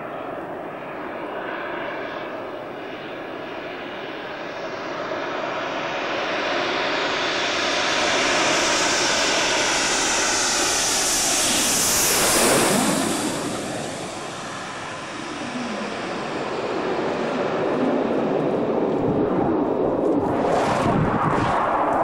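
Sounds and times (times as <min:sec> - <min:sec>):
jets passing close by: 0:05.3 - 0:22.0.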